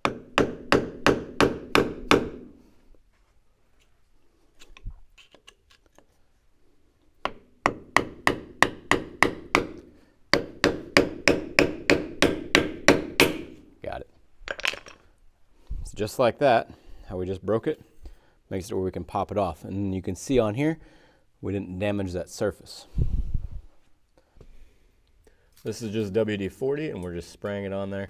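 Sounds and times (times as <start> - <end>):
hammer striking chisel on metal: 0.0 - 2.5, 7.2 - 13.6.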